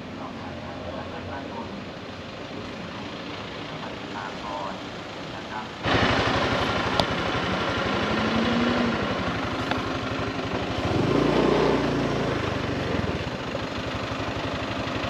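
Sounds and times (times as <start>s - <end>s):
vehicle engine running: 0.0s - 15.0s
deep drone: 3.8s - 13.3s.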